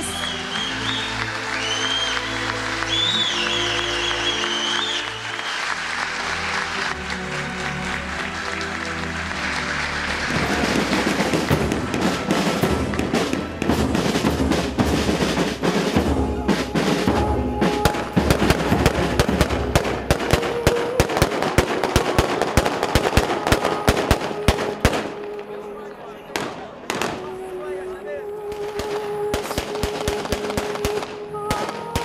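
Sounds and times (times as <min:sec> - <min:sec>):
marching band drums: 0:10.1 - 0:25.2.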